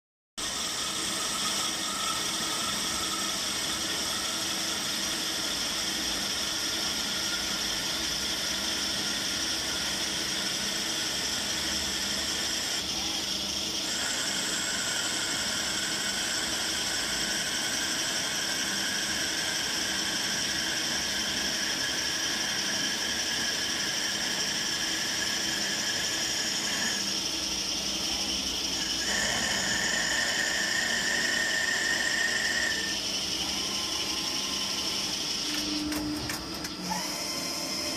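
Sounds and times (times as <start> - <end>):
lathe hum and hiss: 0.4 - 37.9
high whining tones: 23.0 - 37.9.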